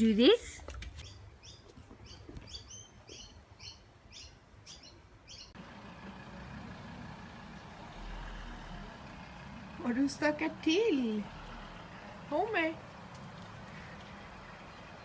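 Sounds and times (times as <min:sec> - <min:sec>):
small bird chirping: 0:01.0 - 0:05.6.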